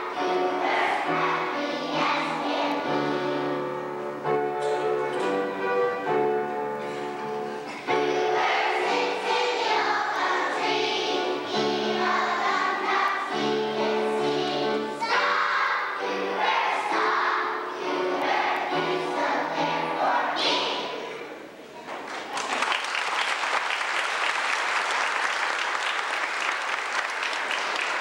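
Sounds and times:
children's choir singing: 0.0 - 22.1.

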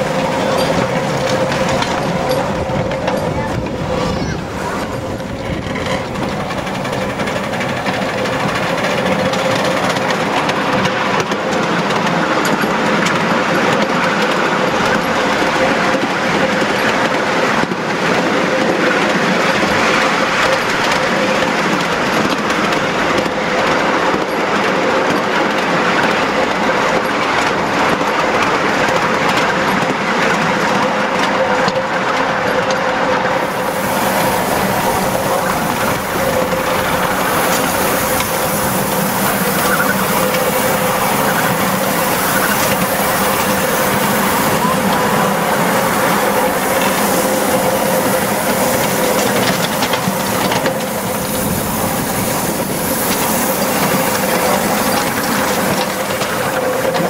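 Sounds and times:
train wheels rolling on rails: 0.0 - 57.0
steady hum: 33.3 - 55.7.

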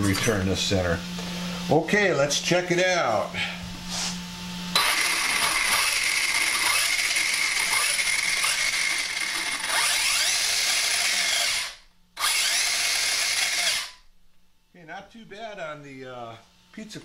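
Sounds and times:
electric motor whine with gear noise: 4.2 - 14.1.

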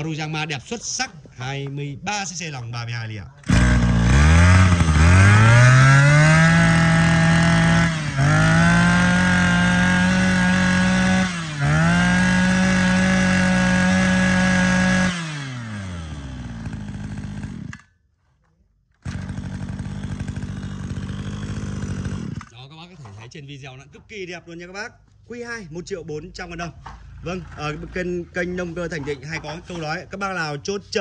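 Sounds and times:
brush cutter engine revving: 3.4 - 17.9, 19.0 - 22.6.

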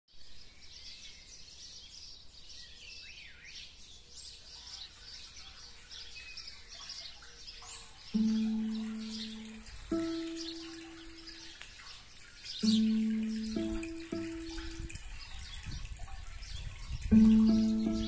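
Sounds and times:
small birds chirping: 0.4 - 18.0
held electronic keyboard note: 8.2 - 11.5, 12.6 - 15.0, 17.1 - 18.0.

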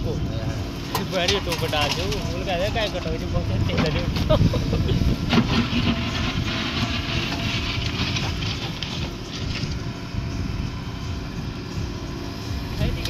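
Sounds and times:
diesel engine working under load: 0.0 - 13.0
bucket digging into soil: 5.2 - 9.8
clattering: 5.3 - 9.8.

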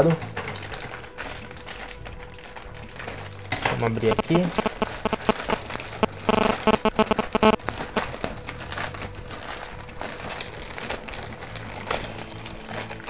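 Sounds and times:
plastic bag tearing and crinkling: 0.5 - 6.2, 7.6 - 13.0.

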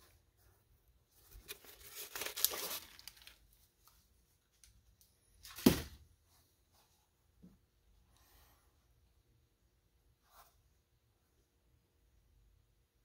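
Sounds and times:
paper crinkling and rustling: 1.2 - 3.9.

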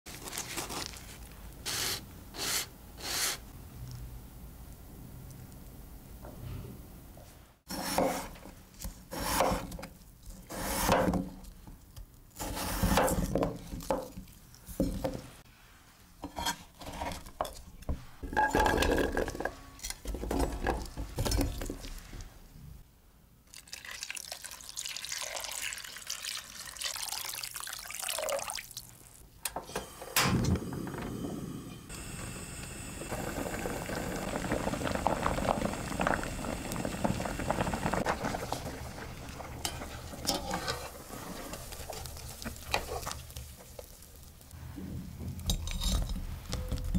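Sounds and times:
water running into pot: 23.5 - 29.2, 32.0 - 44.4
water bubbling: 33.1 - 40.1.

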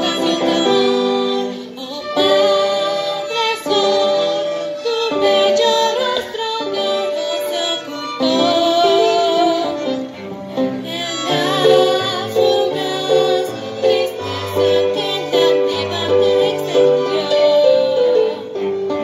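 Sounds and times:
young woman singing: 0.0 - 10.0, 10.6 - 18.7
cello: 0.0 - 19.0
violins: 0.0 - 19.0.

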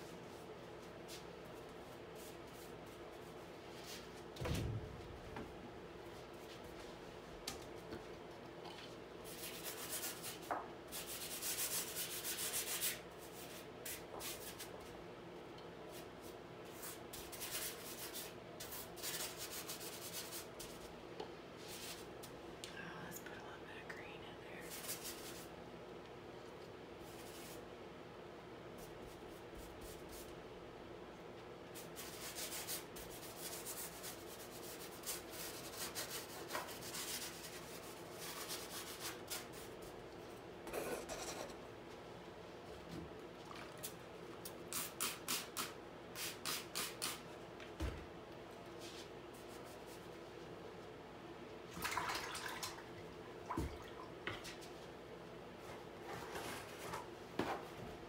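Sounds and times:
paintbrush scratching on canvas: 40.7 - 41.6.

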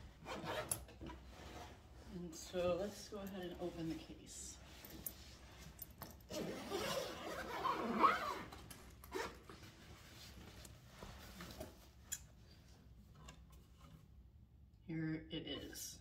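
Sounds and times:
zipper rasping open: 0.1 - 1.8, 6.1 - 9.5.

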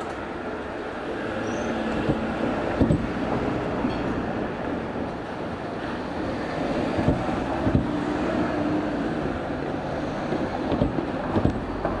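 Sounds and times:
electric train rumbling: 0.0 - 12.0
wind noise on microphone: 1.1 - 12.0
wheel knocks at rail joints: 2.0 - 4.1, 6.9 - 8.0, 10.6 - 12.0.

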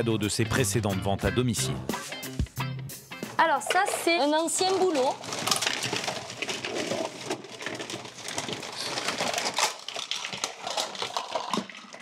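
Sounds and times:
plastic bags rustling and crinkling: 3.3 - 12.0.

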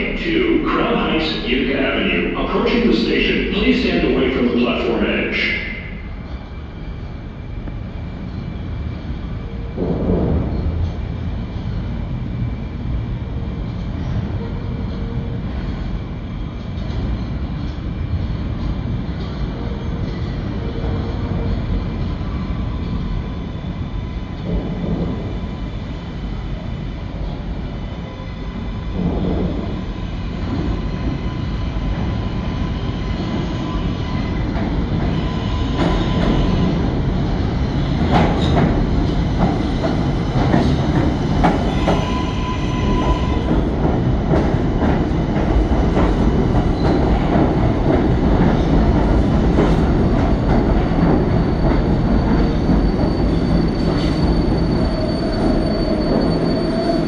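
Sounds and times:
train wheels rumbling on rails: 0.0 - 57.0
high wheel squeal: 51.4 - 57.0.

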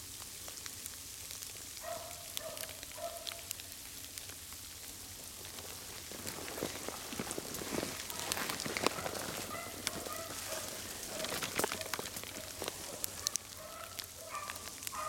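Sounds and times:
leaf litter crunching underfoot: 2.7 - 15.0
distant beagles baying: 8.1 - 15.0.

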